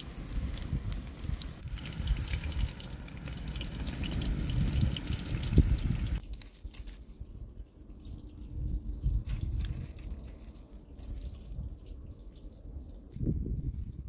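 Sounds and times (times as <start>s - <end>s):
vegetables frying in oil: 0.0s - 6.2s
wind rumble on microphone: 0.0s - 14.0s.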